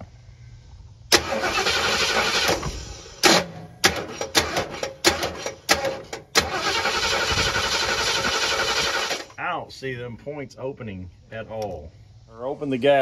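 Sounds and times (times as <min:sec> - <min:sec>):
engine starter cranking: 0:01.1 - 0:09.4.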